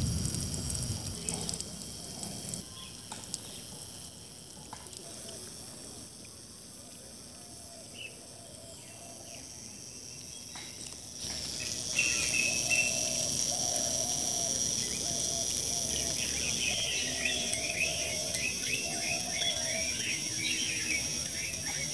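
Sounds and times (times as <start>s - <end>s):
insects trilling: 0.0s - 21.9s
birds chirping: 11.4s - 21.9s.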